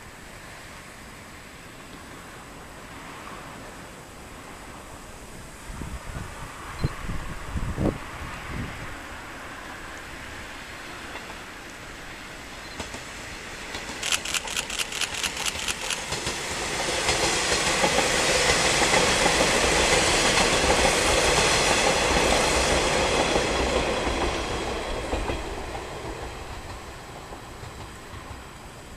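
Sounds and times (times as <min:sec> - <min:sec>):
diesel railcar engines: 0:00.0 - 0:28.9
train wheels clickety-clack: 0:10.9 - 0:11.6, 0:12.6 - 0:28.9.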